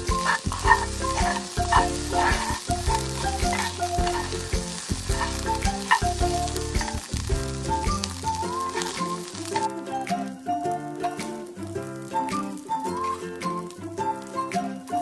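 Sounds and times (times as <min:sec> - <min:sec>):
spatula scraping a pan: 0:00.0 - 0:07.1
background music: 0:00.0 - 0:15.0
rice sizzling in a pan: 0:00.0 - 0:15.0.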